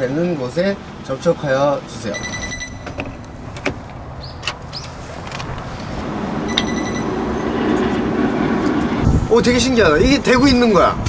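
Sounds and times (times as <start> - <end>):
charger whirring hum: 0.0 - 10.6
charger electronic beeps: 2.1 - 3.2, 6.5 - 7.5.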